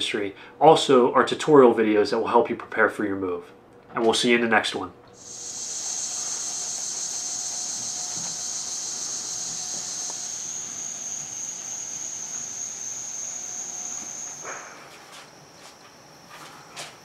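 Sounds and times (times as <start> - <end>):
insect chorus drone: 5.2 - 17.0.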